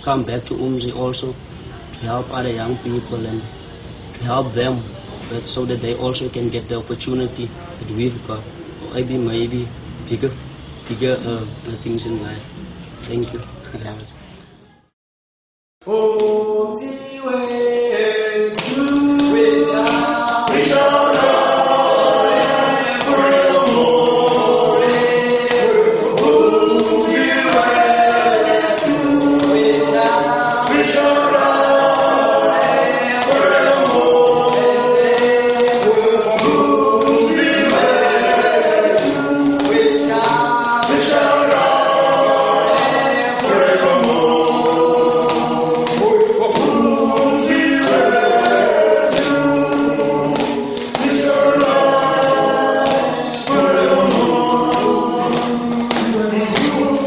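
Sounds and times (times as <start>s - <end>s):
men singing in harmony: 15.8s - 57.0s.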